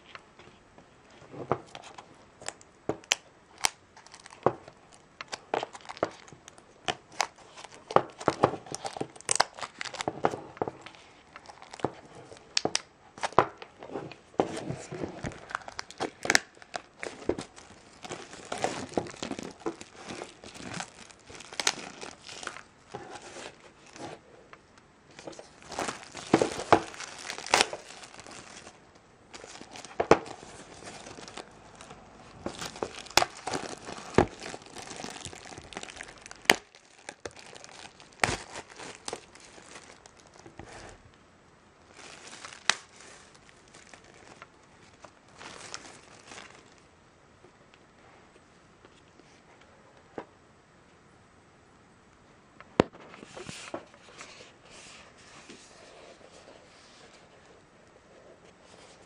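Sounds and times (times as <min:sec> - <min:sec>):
plastic shrink-wrap crinkling: 0:01.6 - 0:24.2, 0:25.1 - 0:41.1, 0:41.8 - 0:46.9
plastic film tearing: 0:05.2 - 0:10.1, 0:15.2 - 0:24.0, 0:25.2 - 0:40.8, 0:41.9 - 0:46.7.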